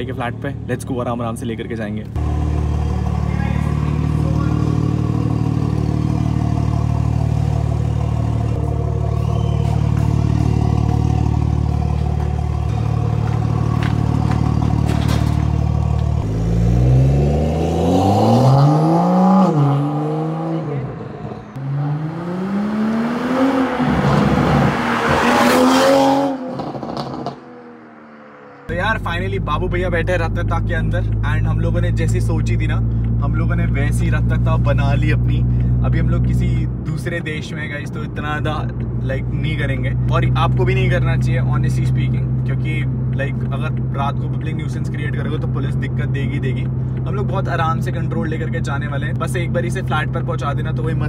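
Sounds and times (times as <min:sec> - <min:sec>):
car engine idling: 0:00.0 - 0:16.9, 0:28.1 - 0:51.0
car accelerating through gears: 0:15.8 - 0:27.6.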